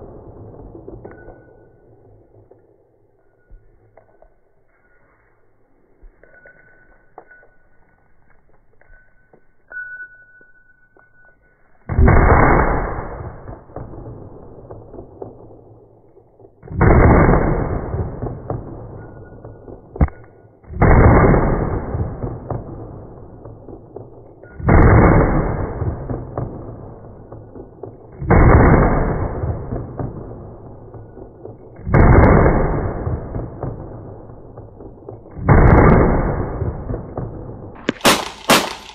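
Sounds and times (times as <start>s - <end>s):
slowed deep pistol shots: 0.0s - 3.4s, 11.9s - 38.9s.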